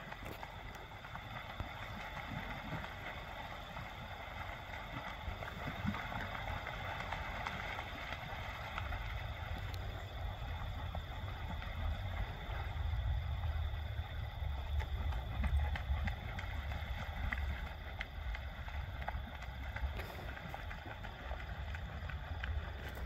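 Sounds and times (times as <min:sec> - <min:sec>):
wind buffeting microphone: 0:04.2 - 0:23.0
faint clicks: 0:14.6 - 0:23.0.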